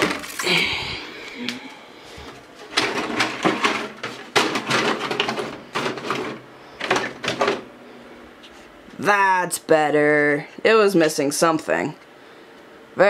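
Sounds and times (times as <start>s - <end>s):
plastic rustling and clattering: 0.0s - 0.7s, 2.1s - 7.7s.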